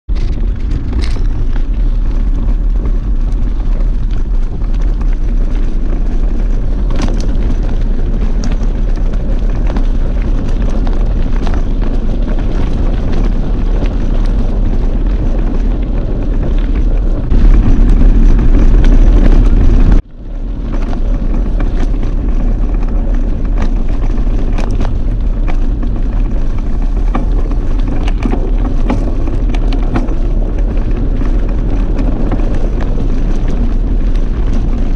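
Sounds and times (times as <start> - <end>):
bike rattling over stones: 0.1 - 34.9
wind buffeting microphone: 0.1 - 34.9.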